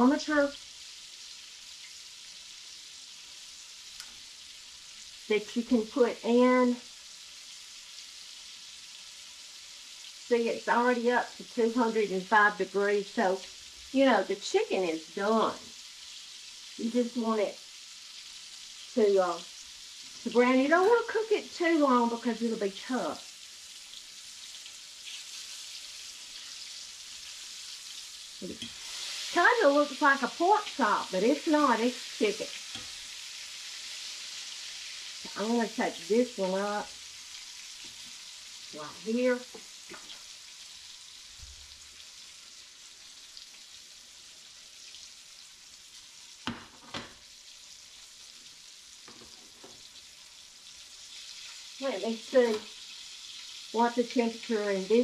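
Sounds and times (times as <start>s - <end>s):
chicken sizzling in a skillet: 0.0s - 55.0s
grease popping: 46.4s - 47.2s.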